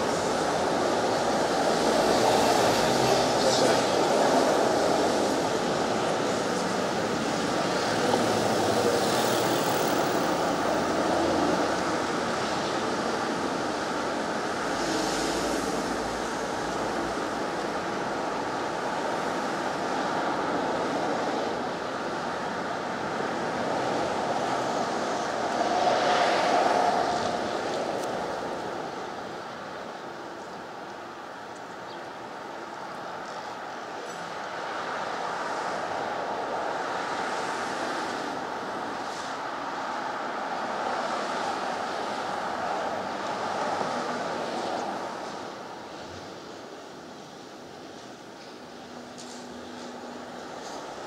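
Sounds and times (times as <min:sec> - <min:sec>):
steady wash of cars: 0:00.0 - 0:51.0
car passing: 0:19.2 - 0:29.5.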